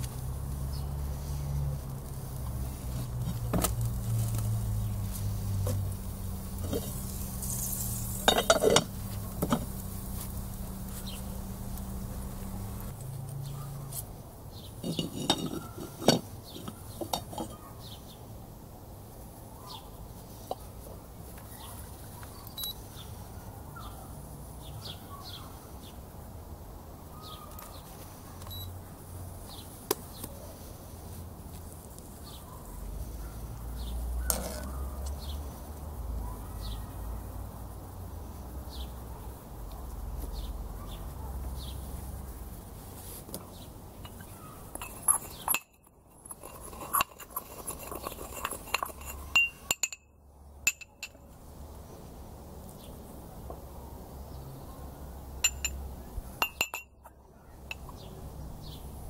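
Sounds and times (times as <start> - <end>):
small birds chirping: 0.0 - 18.4, 19.6 - 26.1, 26.9 - 31.2, 31.8 - 52.1, 54.1 - 59.0
cookware clinking: 8.2 - 9.7, 14.8 - 17.5, 44.0 - 50.0, 50.7 - 51.2, 55.4 - 55.8, 56.4 - 57.0
metal spoon clinking on pot: 8.2 - 9.7, 14.8 - 17.5, 44.0 - 50.1, 50.7 - 51.2, 55.4 - 55.8, 56.4 - 57.0, 57.7 - 58.0.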